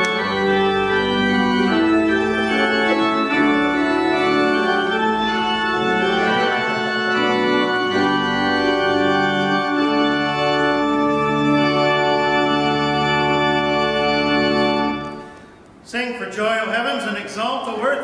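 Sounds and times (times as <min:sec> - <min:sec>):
church organ chords: 0:00.0 - 0:15.5.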